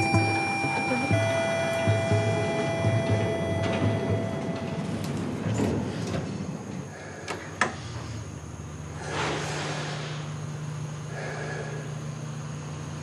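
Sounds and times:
lift doors sliding shut: 3.4s - 6.8s.

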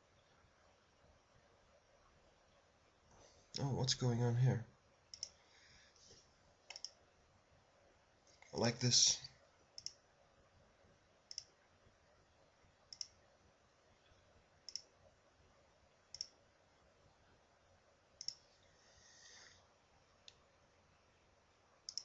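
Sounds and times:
computer mouse button clicking: 5.1s - 5.3s, 6.7s - 7.0s, 9.8s - 10.0s, 11.3s - 11.5s, 12.9s - 13.2s, 16.1s - 16.3s, 18.2s - 18.4s.

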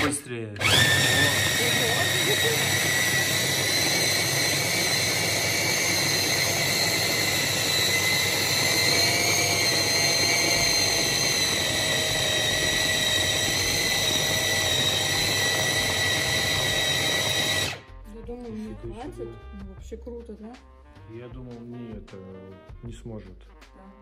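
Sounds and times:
electric chopper mincing meat: 0.0s - 17.8s.

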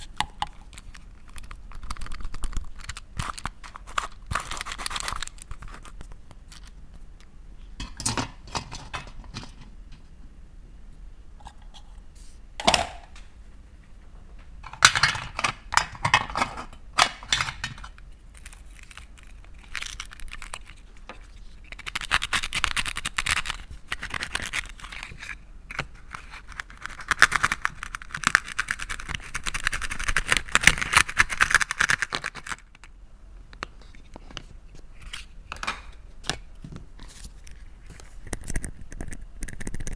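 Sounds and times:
plastic toy pieces clicking and rattling: 0.2s - 6.7s, 14.7s - 20.9s, 21.6s - 25.3s, 26.1s - 32.9s.

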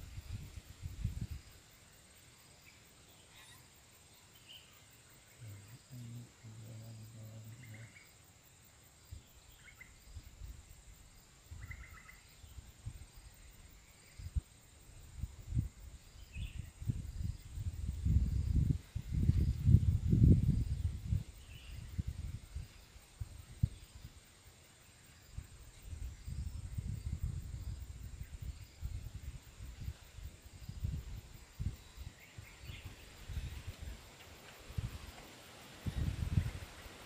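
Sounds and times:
high insect drone: 0.0s - 37.0s
faint low hum: 5.3s - 8.0s.

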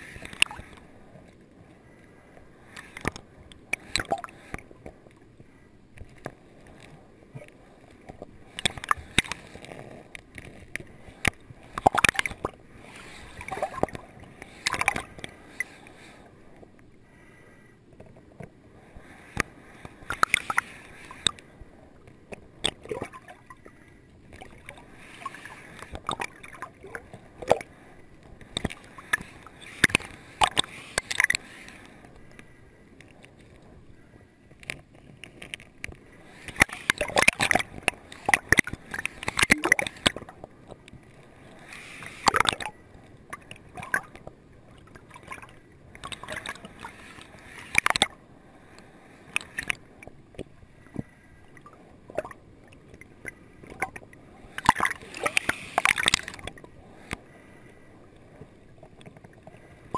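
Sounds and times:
water gurgling underwater: 11.7s - 12.6s, 22.6s - 23.6s, 36.6s - 40.3s.

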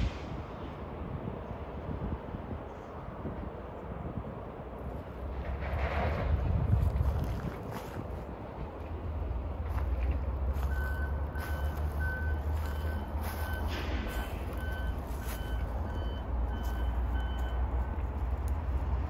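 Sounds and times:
reversing alarm beeping: 10.6s - 18.3s.

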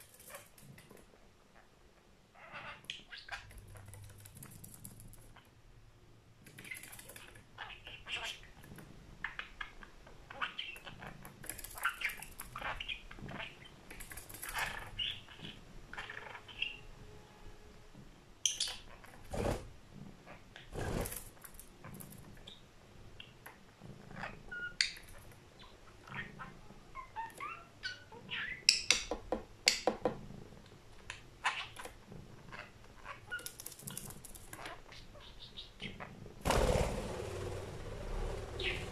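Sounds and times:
budgerigar chattering and chirping: 6.6s - 8.6s, 32.5s - 36.1s, 38.6s - 38.9s.

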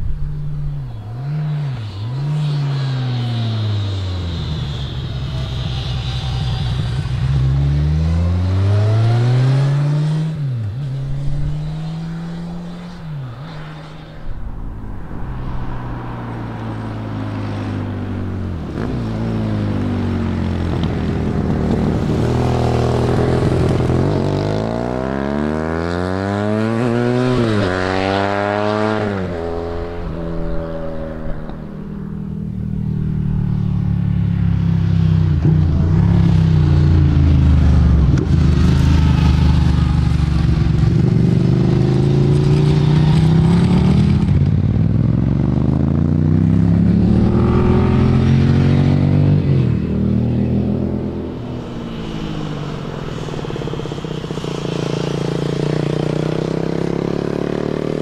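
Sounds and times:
motorcycles passing: 0.0s - 58.0s
motorcycle engine at low revs: 17.6s - 33.9s, 35.0s - 58.0s
motorcycle engine revving hard: 36.0s - 51.4s.

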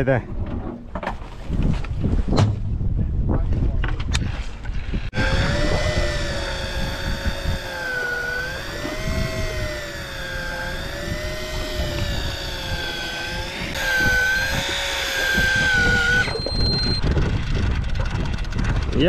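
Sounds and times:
wind: 0.0s - 19.0s
electric fishing reel whine: 5.1s - 18.6s.

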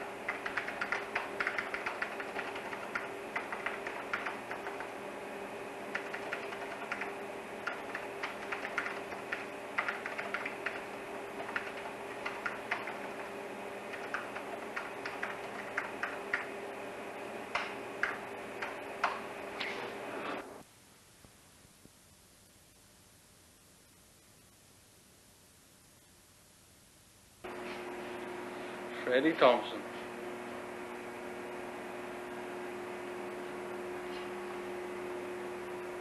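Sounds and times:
steady hum with low tone: 0.0s - 36.0s
rapid light clicks: 0.3s - 4.9s, 5.9s - 10.8s, 11.4s - 13.2s, 13.9s - 16.5s.

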